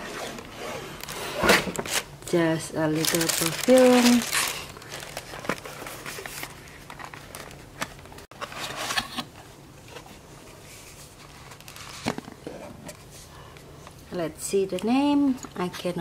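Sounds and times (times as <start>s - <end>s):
paper and cardboard rustling: 2.8s - 13.2s.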